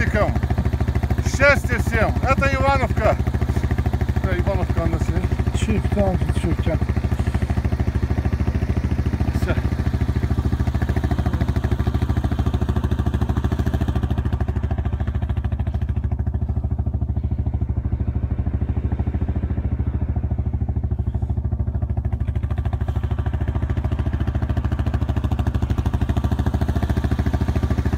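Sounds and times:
quad bike engine idling: 0:00.0 - 0:27.9.

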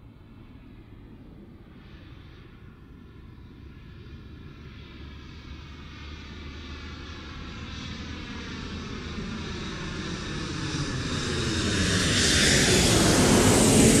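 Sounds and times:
drone propellers buzzing: 0:11.7 - 0:14.0.

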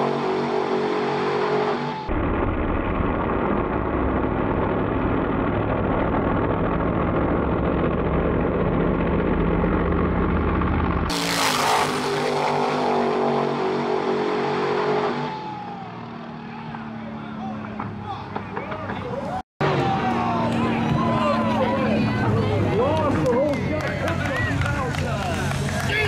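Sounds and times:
truck engines revving and launching: 0:00.0 - 0:26.0.

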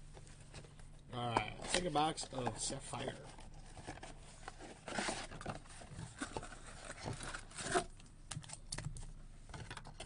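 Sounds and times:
rustling and scraping: 0:01.5 - 0:08.0
cardboard box being handled: 0:02.4 - 0:07.9.

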